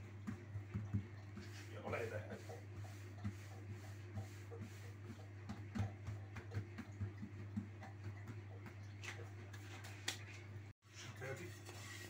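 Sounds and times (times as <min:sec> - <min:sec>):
hands patting dough: 0:00.0 - 0:10.5.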